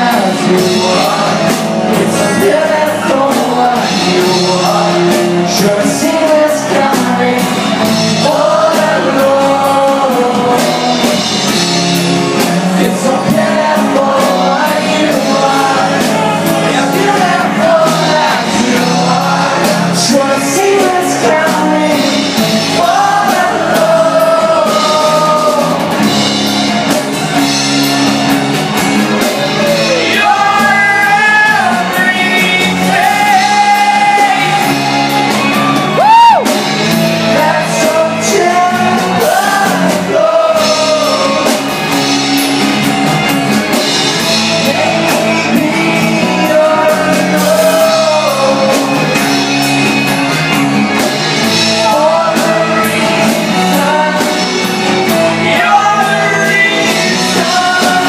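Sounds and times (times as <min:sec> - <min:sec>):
man singing: 0:00.0 - 0:26.1, 0:28.8 - 0:43.0, 0:44.2 - 0:49.8, 0:50.9 - 0:58.0
loud yell: 0:33.0 - 0:36.6.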